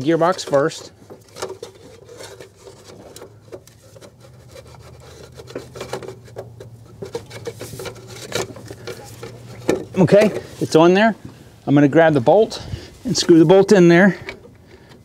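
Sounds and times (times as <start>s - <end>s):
metal parts scraping and clicking: 0.0s - 10.6s.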